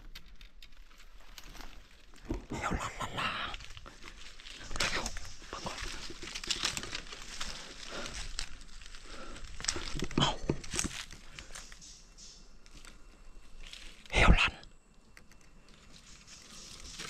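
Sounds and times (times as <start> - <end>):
rustling and crackling: 0.0 - 11.9.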